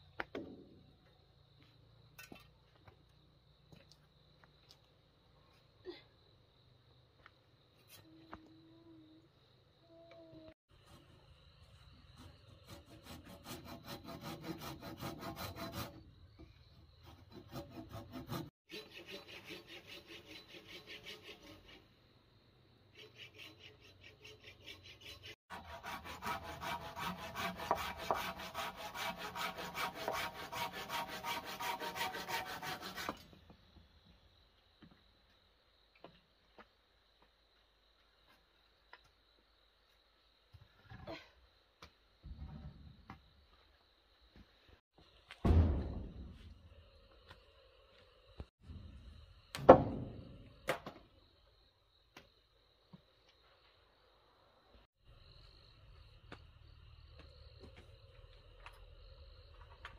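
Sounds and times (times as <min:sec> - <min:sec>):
hand saw cutting wood: 0:12.1 - 0:16.0, 0:17.0 - 0:21.9, 0:22.9 - 0:33.3.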